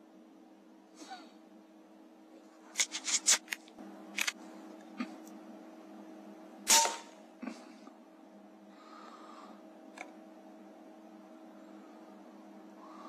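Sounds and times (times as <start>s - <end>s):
air rifle shot: 6.7s - 7.2s.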